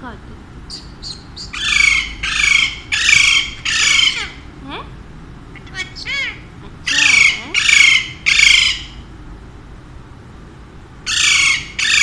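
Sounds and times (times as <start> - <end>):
parakeet squawking: 0.7 - 4.5, 5.5 - 9.1, 11.1 - 12.0.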